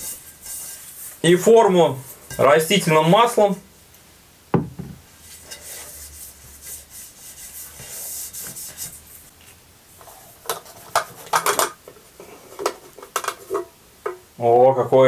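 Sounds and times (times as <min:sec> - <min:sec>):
hand rubbing oil over baking form: 0:00.0 - 0:03.4, 0:05.1 - 0:09.4
sharp knock: 0:04.5 - 0:05.0.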